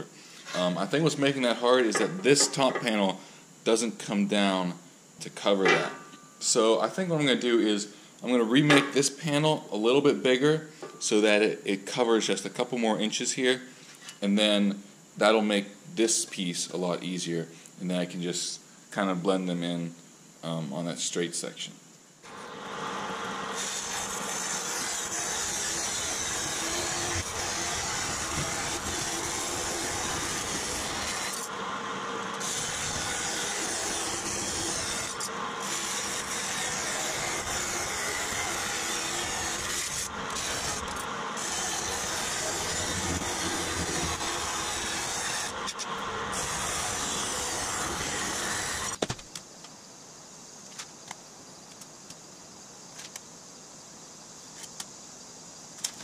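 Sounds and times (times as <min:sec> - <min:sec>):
bandsaw cutting metal: 0:22.3 - 0:49.0.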